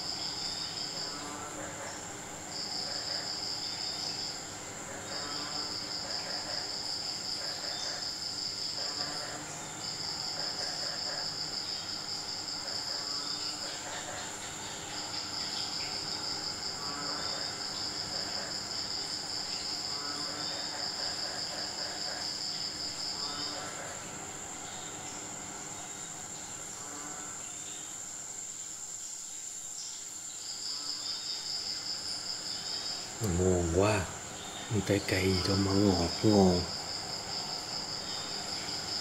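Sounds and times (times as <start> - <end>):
high steady insect trill: 0.0 - 39.0
lower pulsing insect trill: 0.0 - 39.0.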